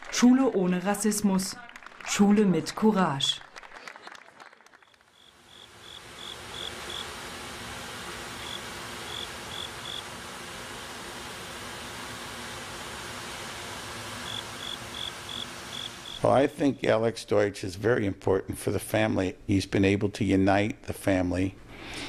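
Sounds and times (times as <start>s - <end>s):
background hiss: 5.1s - 22.0s
cricket chirping: 5.2s - 7.2s, 8.3s - 10.1s, 14.2s - 16.2s.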